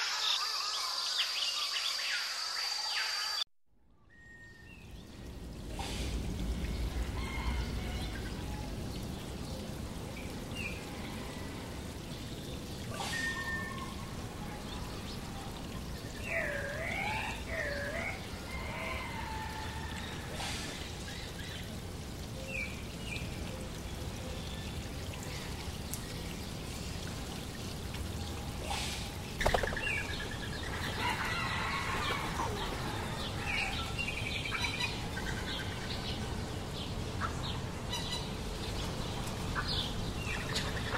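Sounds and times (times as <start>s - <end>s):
small waterfall running: 4.7s - 40.9s.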